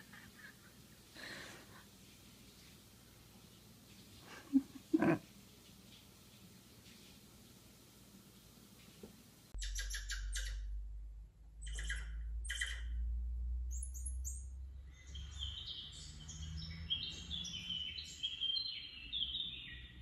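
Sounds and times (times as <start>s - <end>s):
low steady hum: 0.0s - 16.2s
high squeaks and chirps: 9.6s - 10.8s, 11.6s - 13.1s
rapid bird chirps: 9.6s - 10.8s, 11.6s - 13.1s.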